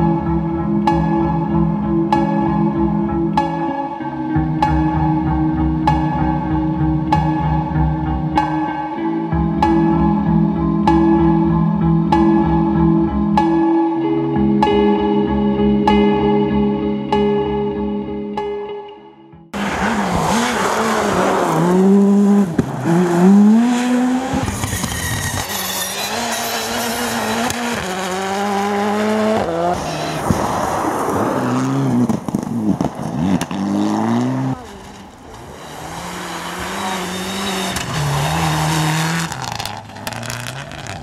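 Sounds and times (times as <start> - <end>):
rally car engines revving: 19.6 - 41.0.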